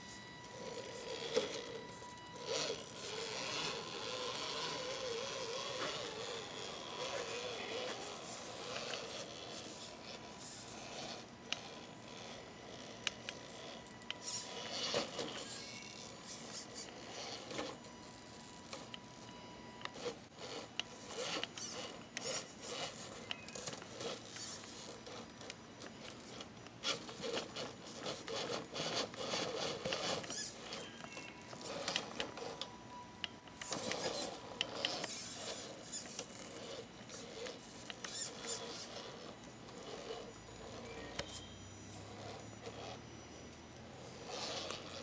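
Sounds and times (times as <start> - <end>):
small electric motor whirring: 0.0 - 45.0
tyres scraping on rock: 26.0 - 32.7.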